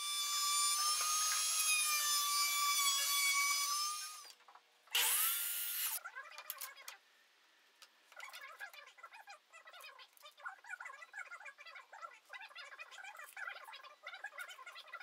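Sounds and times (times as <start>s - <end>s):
power saw cutting: 0.0s - 4.3s, 5.0s - 6.0s
router whining cutting wood: 0.0s - 4.3s, 5.0s - 6.0s.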